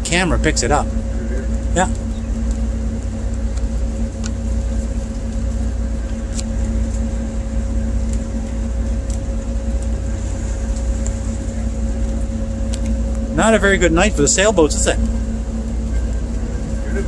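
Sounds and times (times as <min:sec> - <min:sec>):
diesel engine droning: 0:00.0 - 0:17.0
faint ticks: 0:12.1 - 0:13.2.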